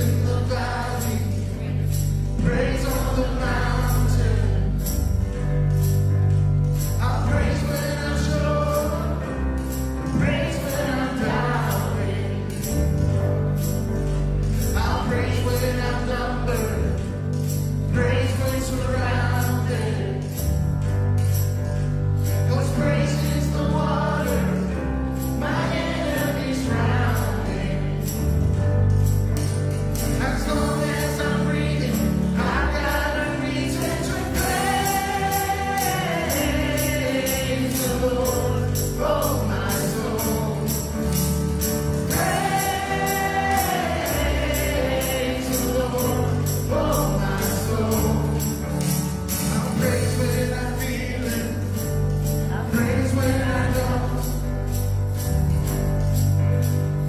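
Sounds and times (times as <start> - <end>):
voices singing: 0.0 - 4.9, 7.0 - 12.8, 22.6 - 28.2, 30.2 - 51.6
jingling percussion: 0.0 - 57.0
worship band playing: 0.0 - 57.0.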